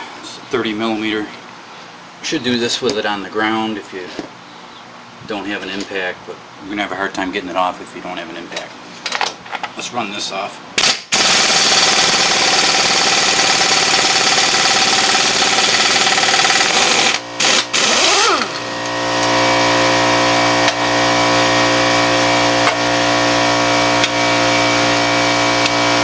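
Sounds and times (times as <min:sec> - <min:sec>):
air impact wrench hammering: 0:10.8 - 0:26.0
motor whining and humming: 0:16.0 - 0:26.0.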